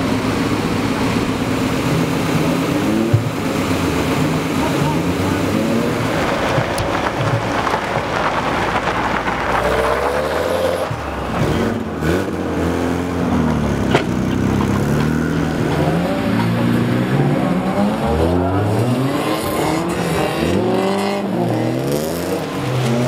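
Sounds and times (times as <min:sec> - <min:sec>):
car engines revving: 0:00.0 - 0:23.0
rough rushing noise: 0:00.0 - 0:23.0
sharp crack: 0:05.4 - 0:12.4.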